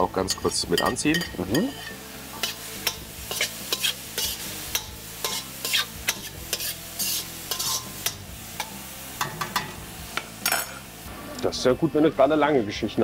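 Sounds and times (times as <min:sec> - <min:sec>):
vegetables sizzling in a wok: 0:00.0 - 0:13.0
metal spoon scraping a pan: 0:00.3 - 0:09.8, 0:10.4 - 0:10.9.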